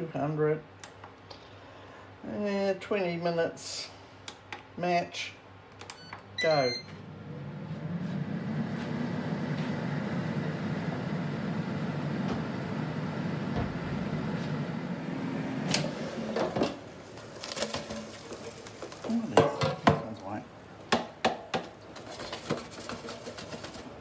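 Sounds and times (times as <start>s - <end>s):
air fryer fan whirring: 6.0s - 24.0s
baskets clicking and knocking: 16.4s - 24.0s.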